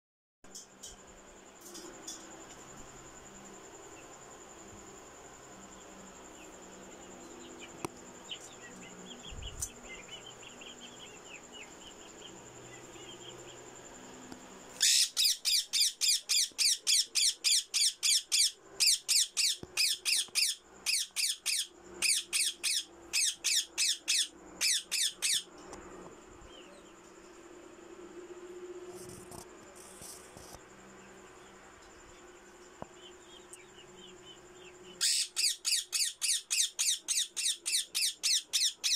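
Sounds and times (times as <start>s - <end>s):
high insect trill: 0.5s - 38.9s
parakeet shrill calls: 14.8s - 25.5s, 35.0s - 38.9s.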